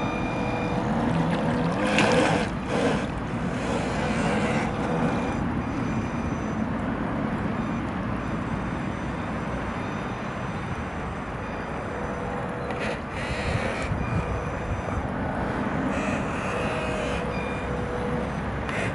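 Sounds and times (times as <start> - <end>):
wind buffeting microphone: 12.5 - 17.0.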